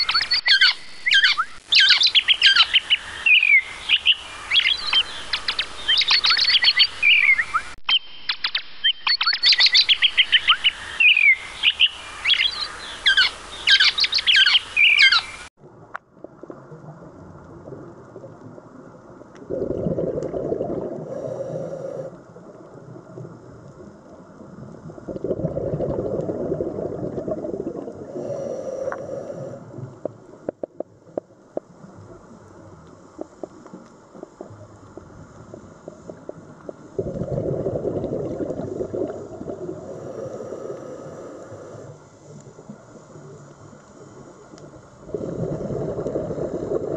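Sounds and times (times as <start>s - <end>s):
underwater bubbling: 15.6s - 46.9s
faint clicks: 29.9s - 36.9s, 40.7s - 44.9s.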